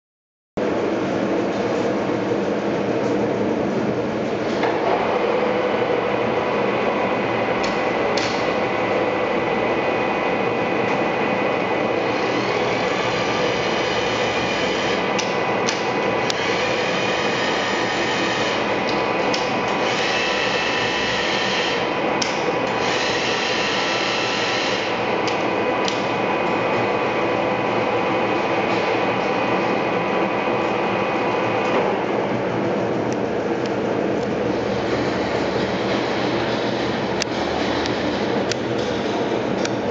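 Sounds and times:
lathe machine whine: 0.7s - 39.9s
metal cutting noise: 11.8s - 26.6s, 34.5s - 39.3s.

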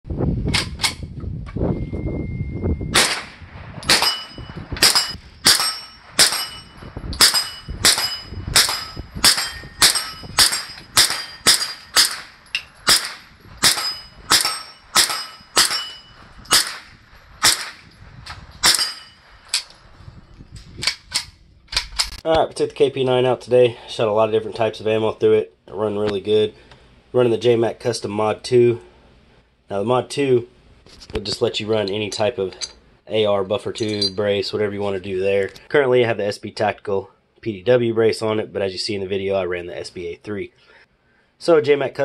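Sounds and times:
pistol shots: 2.9s - 17.9s, 18.6s - 19.2s
bullets ringing on steel targets: 3.8s - 17.8s, 18.6s - 19.4s.

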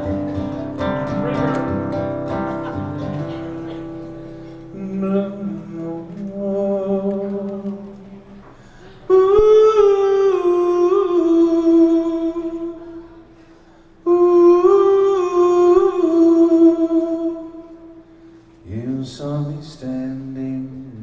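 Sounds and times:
acoustic guitar strums: 0.0s - 9.6s
man humming: 0.0s - 13.3s, 14.0s - 18.0s.

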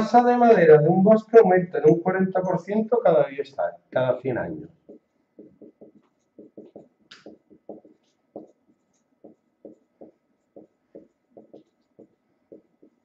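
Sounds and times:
marker writing on whiteboard: 4.7s - 13.0s.

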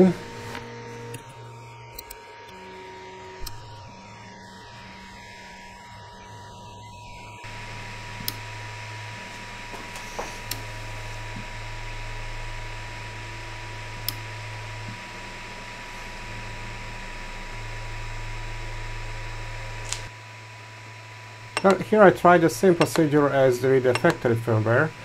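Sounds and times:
cooling fans: 0.0s - 25.0s
stepper motors humming: 0.0s - 25.0s
thin steady whine: 0.0s - 25.0s
probe pin clicks: 23.9s - 24.2s.

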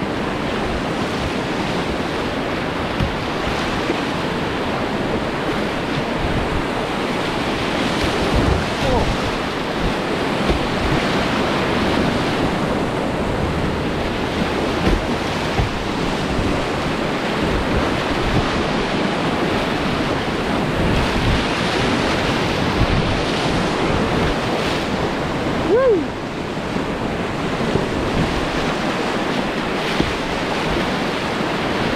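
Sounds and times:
whitewater rapids roaring: 0.0s - 31.9s
wind buffeting microphone: 0.0s - 31.9s.

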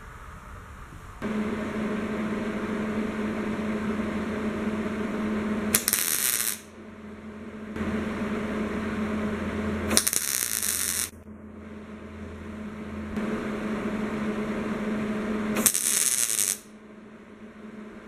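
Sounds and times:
machine hum: 0.0s - 18.0s
welder arc crackle: 1.2s - 6.8s, 8.6s - 11.2s, 15.5s - 16.7s.

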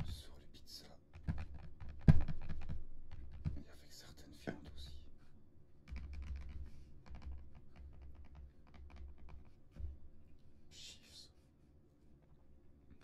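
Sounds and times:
fingertips tapping on cellophane box: 1.2s - 3.6s, 5.8s - 10.0s.

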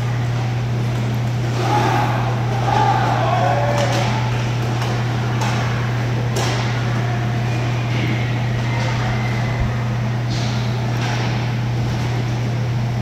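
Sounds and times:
steady low hum: 0.0s - 13.0s
hockey sticks clacking on puck: 3.7s - 5.7s, 6.3s - 6.7s.

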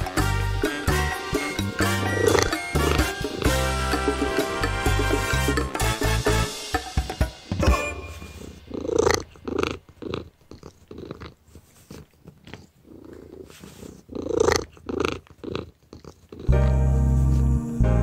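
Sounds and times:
cat purring loudly: 1.2s - 5.4s, 8.3s - 16.7s.

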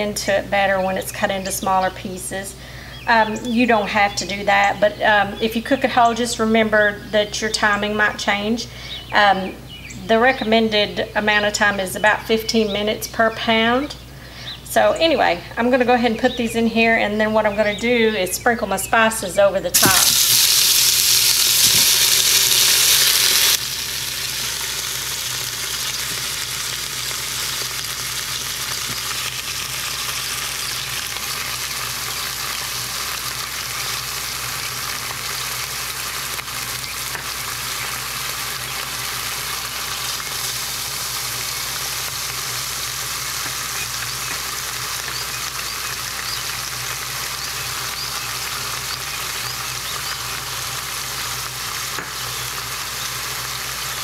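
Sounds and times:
meat searing in hot oil: 19.7s - 54.0s.

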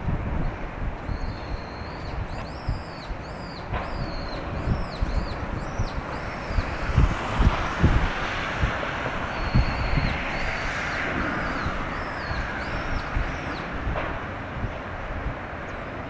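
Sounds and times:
wind buffeting microphone: 0.0s - 16.0s
small bird chirping: 1.1s - 7.1s.

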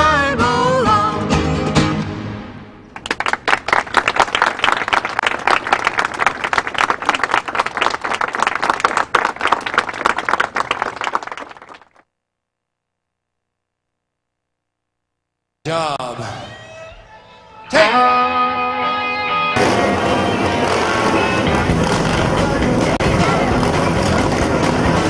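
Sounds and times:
crowd applause: 2.9s - 12.0s, 19.6s - 25.0s.

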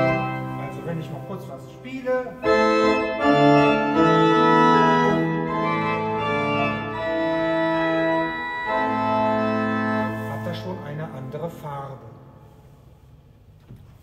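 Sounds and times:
pipe organ sustained chords: 0.0s - 12.8s.

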